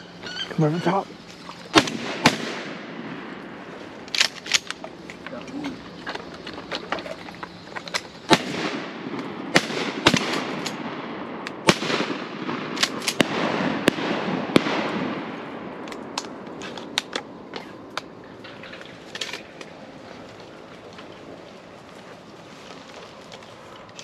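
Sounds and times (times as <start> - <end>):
shotgun shots echoing: 1.7 - 4.7, 8.3 - 16.2.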